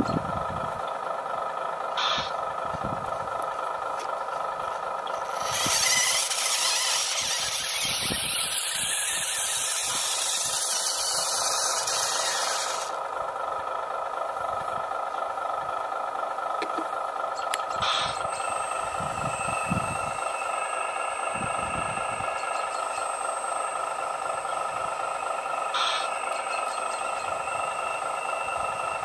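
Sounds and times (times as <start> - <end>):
hissing squealing whine: 1.9 - 2.9, 4.6 - 13.3, 17.3 - 29.0
small electric motors whining: 4.7 - 13.0, 17.4 - 29.0.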